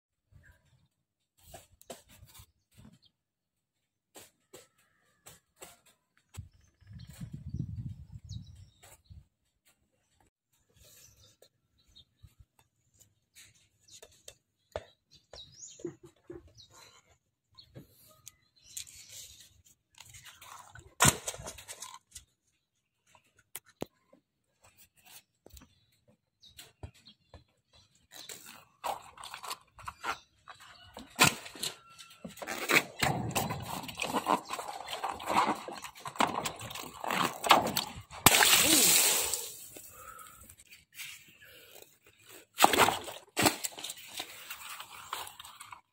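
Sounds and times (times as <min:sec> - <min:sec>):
rubber balloons squeaking: 0:31.1 - 0:39.0
sharp crack: 0:37.1 - 0:39.8.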